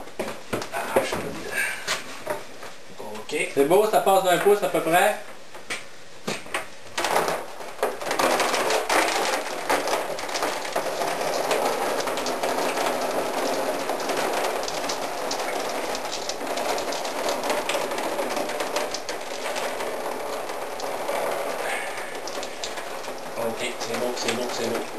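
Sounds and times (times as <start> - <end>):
dense crackling: 0.0 - 24.9
steam hissing: 21.0 - 24.9.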